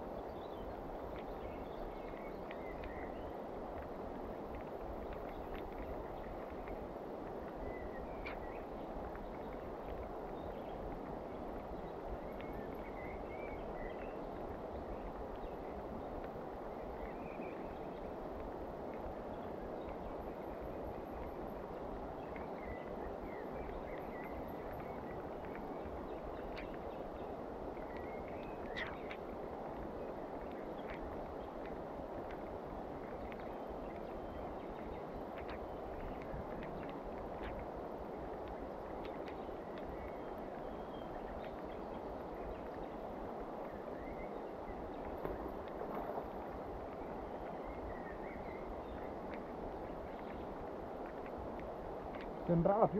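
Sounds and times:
rain: 0.0s - 52.9s
faint bird chirps: 27.9s - 29.2s.

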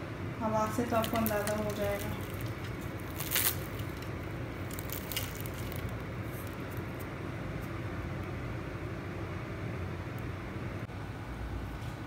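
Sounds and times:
pastry crust crackling: 0.6s - 7.8s.

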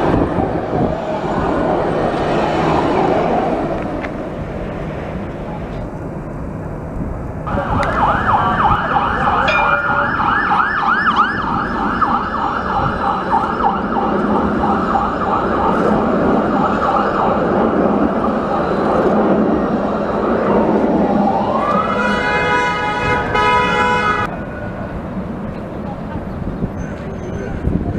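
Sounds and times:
tram passing: 0.0s - 27.9s
siren-like warble: 7.5s - 19.3s.

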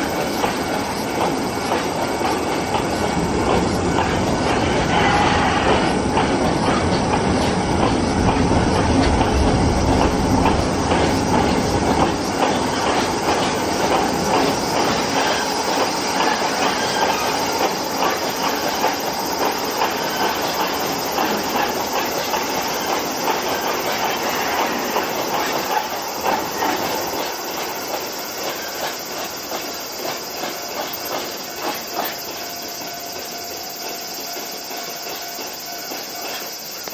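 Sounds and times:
train wheels clicking over rail joints: 0.0s - 36.9s
wheel squeal: 3.9s - 6.0s, 11.0s - 36.9s.

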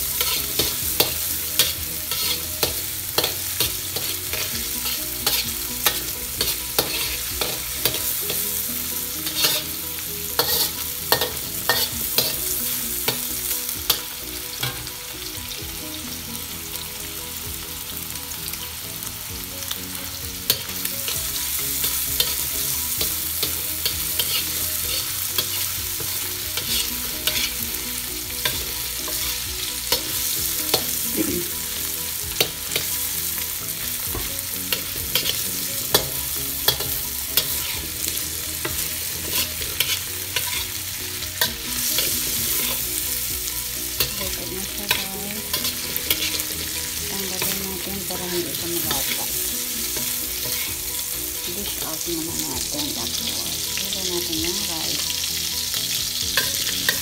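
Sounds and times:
metal spatula scraping a pan: 0.0s - 13.3s, 20.4s - 51.8s, 54.9s - 57.0s
food sizzling in a wok: 0.0s - 57.0s.

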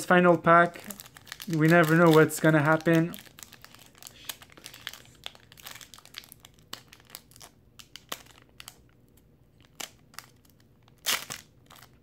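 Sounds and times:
foil wrapper crackling: 0.6s - 9.0s, 9.6s - 12.0s.

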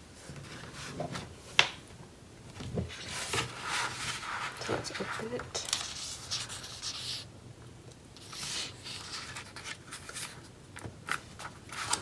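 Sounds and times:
paper rustling: 2.7s - 7.3s, 8.2s - 12.0s.

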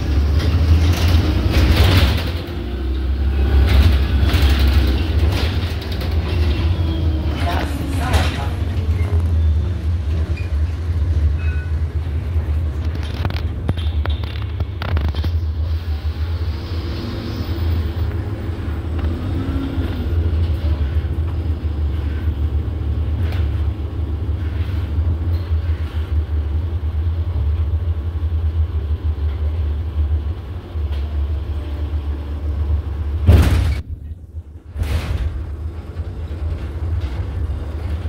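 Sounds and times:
bus engine and road rumble: 0.0s - 38.0s
loud thump: 33.2s - 34.0s.

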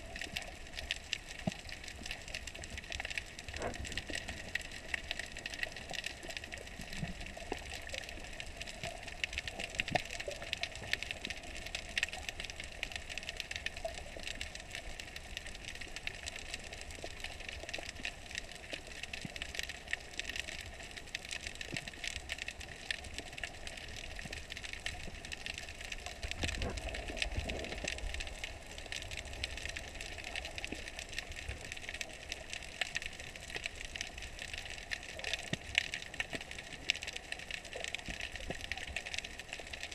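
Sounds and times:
low rumble of water movement: 0.0s - 39.9s
underwater hiss with crackling clicks: 0.0s - 39.9s.

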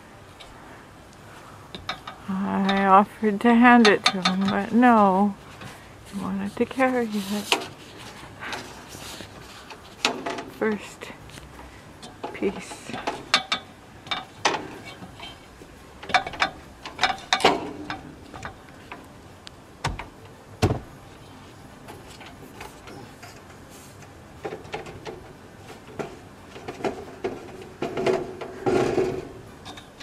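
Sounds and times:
footsteps on metal ladder: 1.7s - 11.4s, 16.0s - 19.1s, 24.4s - 30.0s.

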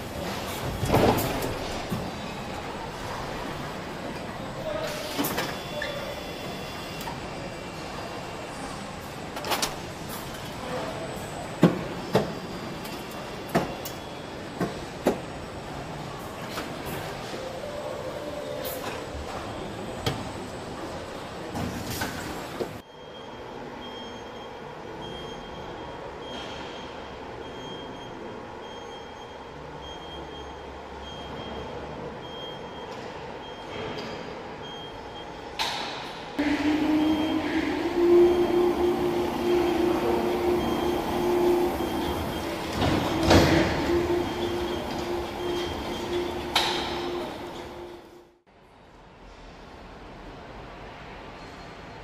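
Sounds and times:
vehicle and casters rolling: 0.0s - 23.3s, 35.6s - 48.4s
factory machinery hum: 0.0s - 51.2s
short high warning beeps: 36.4s - 48.3s.

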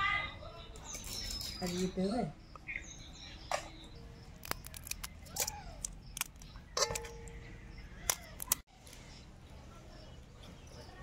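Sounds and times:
knife cutting crunchy fruit: 4.3s - 7.2s.

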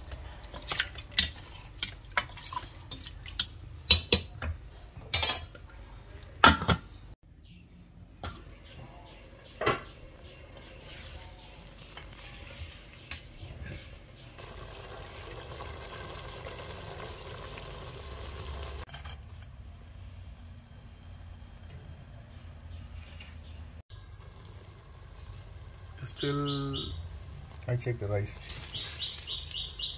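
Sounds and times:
kitchenware clinking: 0.0s - 5.7s
pot of rice simmering: 10.1s - 22.1s, 23.9s - 29.9s.

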